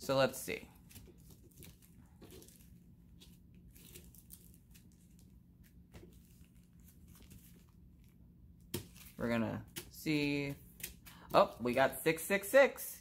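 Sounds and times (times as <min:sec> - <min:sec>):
plastic bags crinkling: 0:00.8 - 0:05.4.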